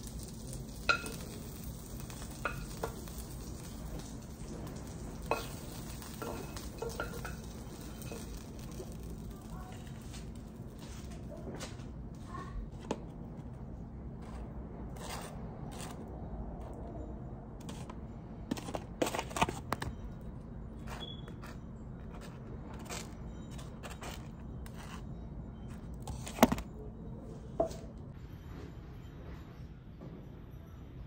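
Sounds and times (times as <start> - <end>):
knife scraping toast: 20.8 - 25.0.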